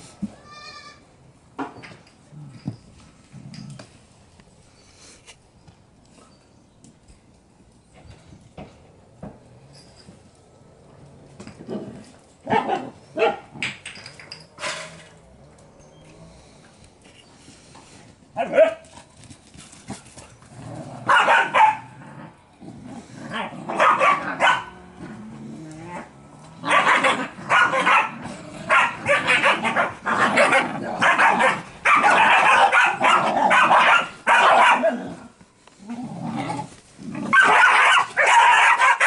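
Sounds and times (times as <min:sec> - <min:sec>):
puppies barking and yipping: 0:23.4 - 0:24.8, 0:26.6 - 0:34.8, 0:37.3 - 0:39.0.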